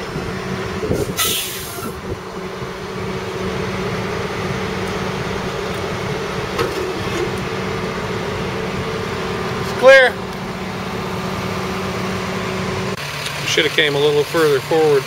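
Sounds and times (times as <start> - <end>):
truck engine running: 0.0 - 15.0
crate dragging off trailer: 0.3 - 13.6
short hiss: 1.1 - 1.9.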